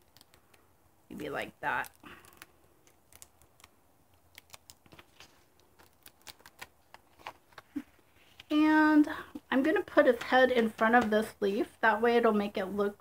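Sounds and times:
paper crinkling: 0.0 - 8.5.

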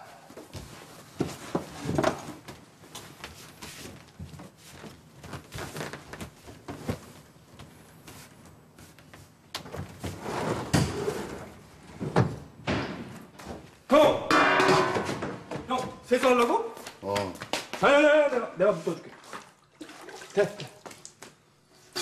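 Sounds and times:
bedding rustling: 0.3 - 13.8.

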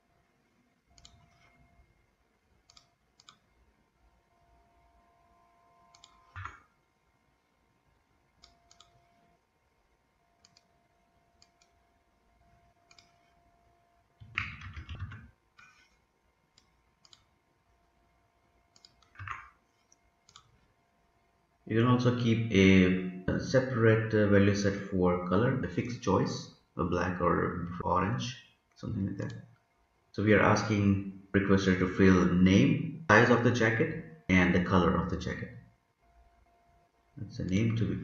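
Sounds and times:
computer mouse clicks: 0.9 - 1.6, 2.6 - 3.5, 5.9 - 6.7, 8.4 - 9.2, 10.4 - 10.7, 11.4 - 11.8, 12.8 - 13.4, 14.2 - 17.4, 18.7 - 20.6.

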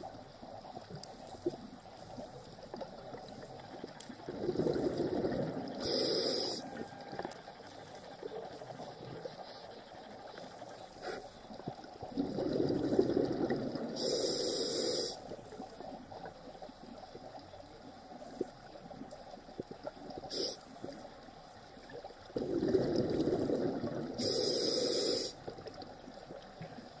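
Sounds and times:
bubbly underwater exhalation: 4.2 - 7.2, 12.0 - 14.1, 22.4 - 24.4
regulator inhalation hiss: 5.7 - 6.9, 11.0 - 11.4, 14.0 - 15.4, 20.3 - 20.8, 24.2 - 25.5.

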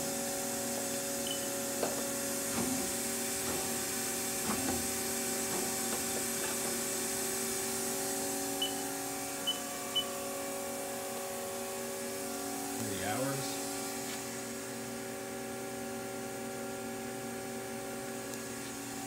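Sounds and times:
machine hum and hiss: 0.0 - 19.0
short high beeps: 8.6 - 8.8.

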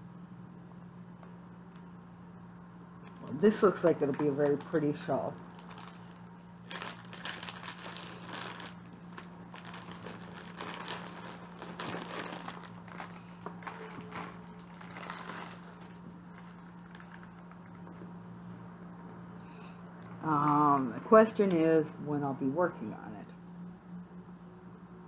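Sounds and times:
steady low hum: 0.0 - 25.0
packaging crinkling and rustling: 3.2 - 18.0.

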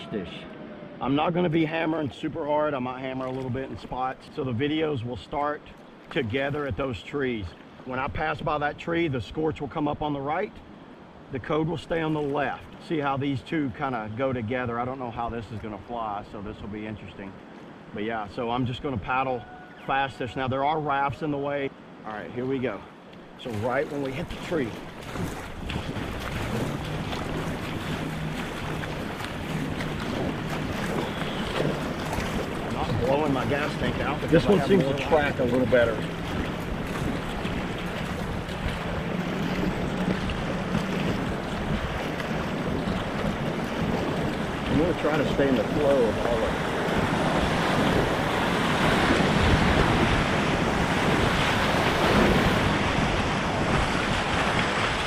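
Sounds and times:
river water rushing and splashing: 0.0 - 55.0
paddle dipping into water: 1.9 - 8.1, 22.9 - 55.0
wind buffeting microphone: 23.6 - 55.0.

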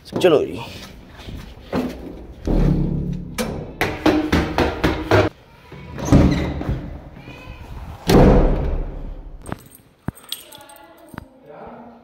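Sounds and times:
thud: 1.8 - 5.3, 8.0 - 9.5
wooden door banging: 2.4 - 5.3.

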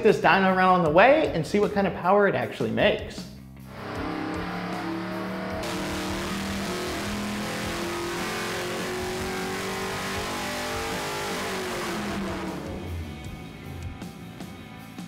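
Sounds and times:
car engine at full throttle: 3.7 - 13.8.

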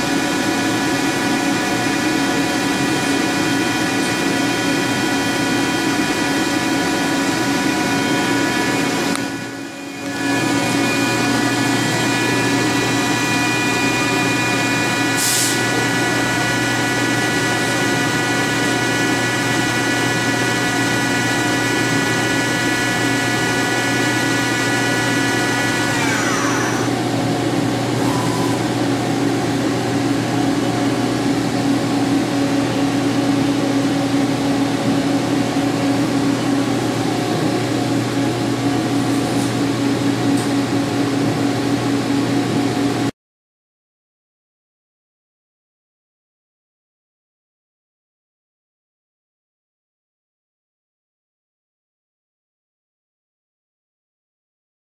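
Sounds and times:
high whining tones: 0.0 - 29.3
lathe humming: 0.0 - 39.0.

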